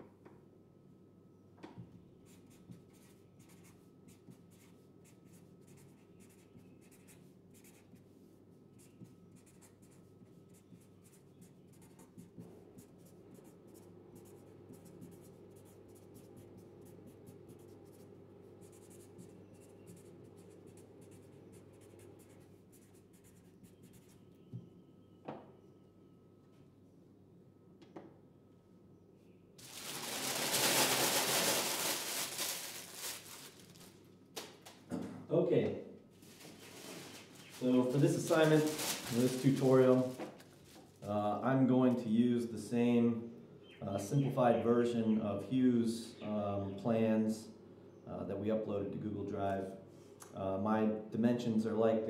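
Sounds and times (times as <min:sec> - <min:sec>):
low room hum: 0:00.0 - 0:52.0
marker pen strokes on paper: 0:02.3 - 0:24.2, 0:36.6 - 0:40.0.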